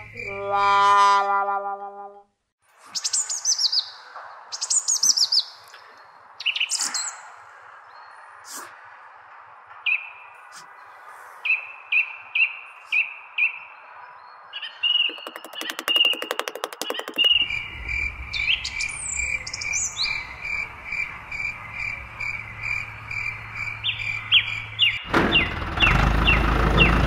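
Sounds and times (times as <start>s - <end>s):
birds chirping: 9.8s - 27.0s
rapid clicking trill: 15.1s - 17.5s.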